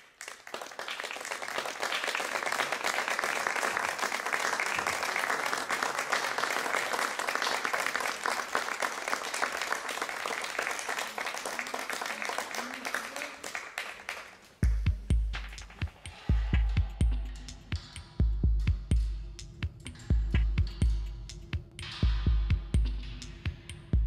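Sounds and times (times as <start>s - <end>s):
audience applauding: 0.0s - 14.6s.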